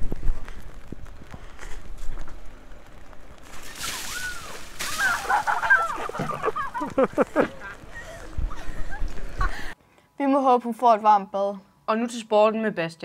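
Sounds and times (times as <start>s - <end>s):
water splashing over head: 3.4s - 9.4s
woman laughing: 4.9s - 9.8s.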